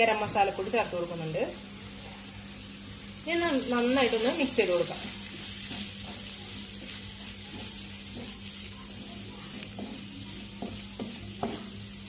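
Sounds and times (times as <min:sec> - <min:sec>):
masala sizzling in a pan: 0:00.0 - 0:12.0
spatula scraping and tapping pan: 0:03.6 - 0:12.0.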